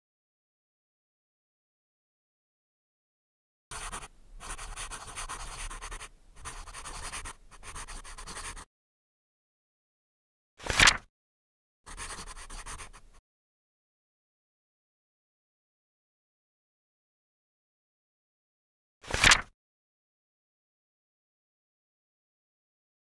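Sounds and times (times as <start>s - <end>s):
pen scratching on paper: 3.7s - 8.7s, 11.9s - 13.2s
paper page flipping: 10.6s - 11.1s, 19.1s - 19.4s.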